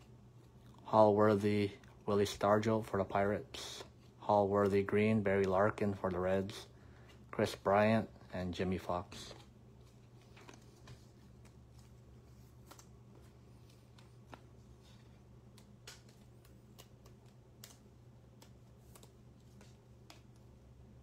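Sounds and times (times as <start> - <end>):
trading cards clicking: 15.2 - 20.6.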